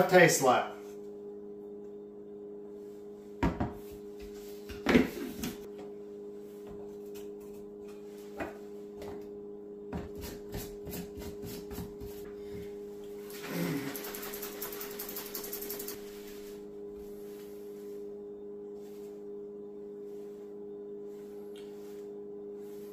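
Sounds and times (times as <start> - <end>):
low hum: 0.0 - 22.9.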